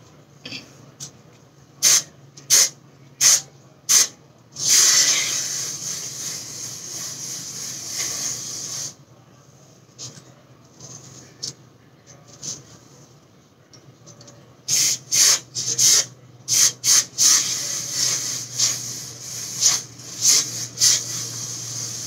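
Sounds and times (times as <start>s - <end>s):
aerosol hairspray spraying: 14.7s - 22.0s.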